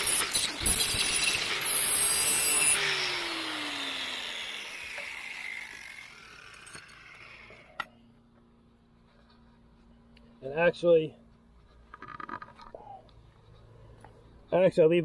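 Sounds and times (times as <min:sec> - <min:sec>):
angle grinder grinding steel blade: 0:00.0 - 0:07.9.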